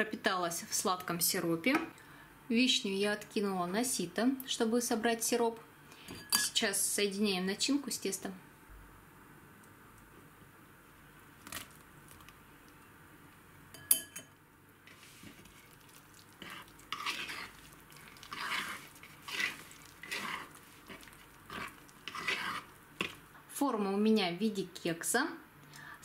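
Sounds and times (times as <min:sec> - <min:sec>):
spatula scraping batter: 0:14.9 - 0:23.3.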